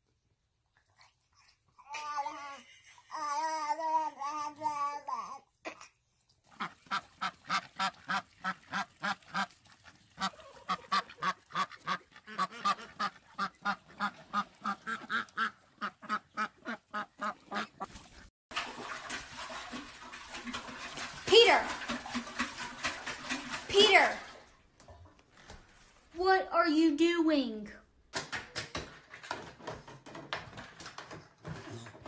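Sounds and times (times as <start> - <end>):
duck quacking: 6.6 - 17.9.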